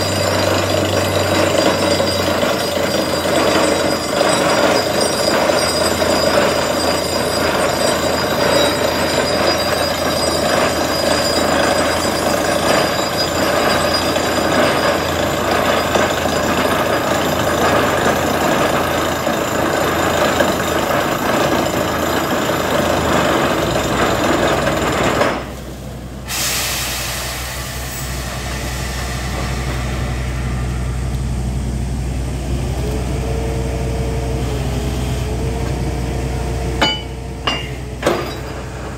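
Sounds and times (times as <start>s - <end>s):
drilling rig hammering: 0.0s - 26.5s, 35.6s - 38.9s
engine low hum: 27.1s - 38.9s.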